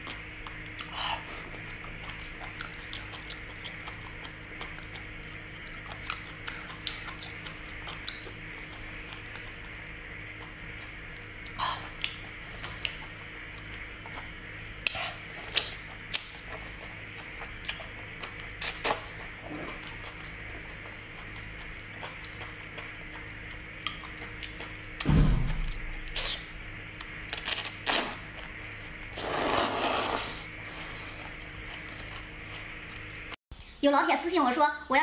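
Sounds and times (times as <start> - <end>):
wet sucking and chewing: 0.0 - 33.4
loud slurp: 27.4 - 28.3, 29.1 - 31.2.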